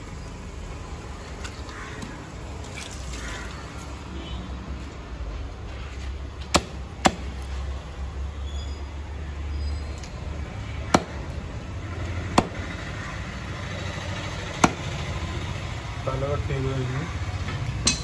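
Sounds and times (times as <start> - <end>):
knife chopping on wooden block: 14.6 - 14.8.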